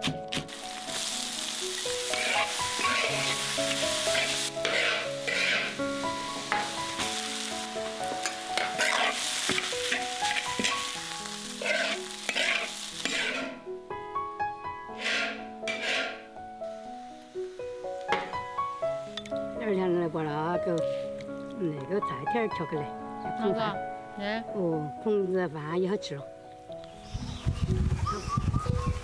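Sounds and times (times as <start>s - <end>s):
rice sizzling in a wok: 0.5s - 13.7s, 14.9s - 19.2s, 19.8s - 21.2s
spatula scraping a wok: 2.0s - 5.8s, 8.2s - 13.6s, 14.9s - 16.3s.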